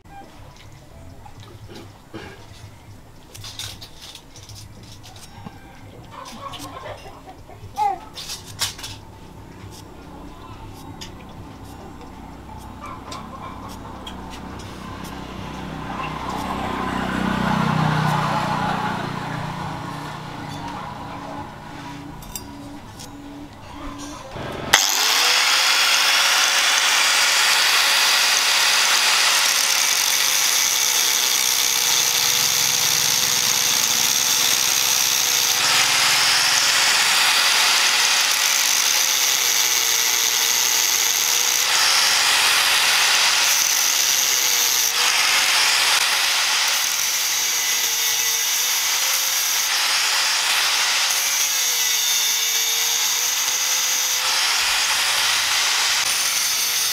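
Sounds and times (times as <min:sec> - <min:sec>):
angle grinder cutting steel: 0:11.6 - 0:23.1, 0:24.3 - 0:56.9.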